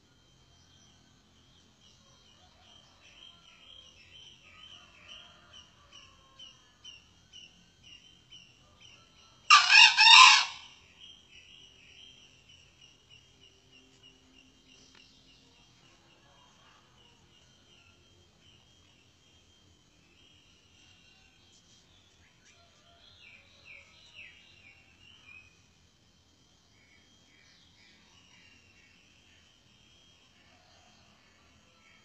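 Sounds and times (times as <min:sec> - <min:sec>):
insects chirping: 0:06.4 - 0:16.4
rooster crowing: 0:09.4 - 0:10.8.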